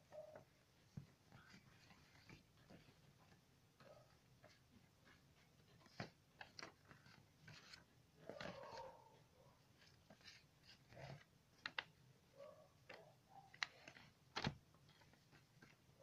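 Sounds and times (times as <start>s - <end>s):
paper crackling and rustling: 4.4s - 12.0s, 12.9s - 16.0s.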